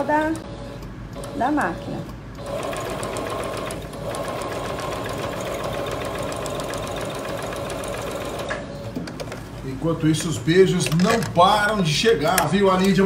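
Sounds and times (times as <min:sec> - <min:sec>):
sewing machine stitching: 0:02.4 - 0:08.5.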